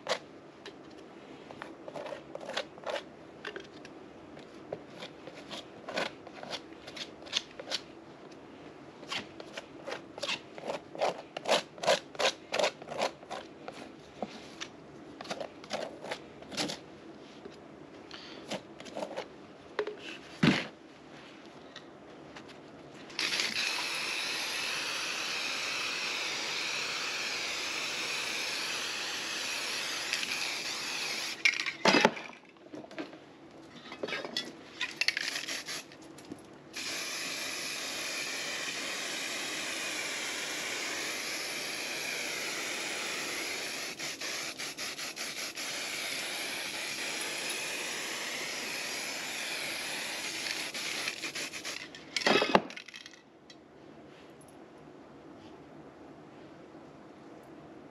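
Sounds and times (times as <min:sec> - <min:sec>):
spray paint can hissing: 0:23.2 - 0:31.5, 0:35.1 - 0:35.9, 0:36.8 - 0:51.9.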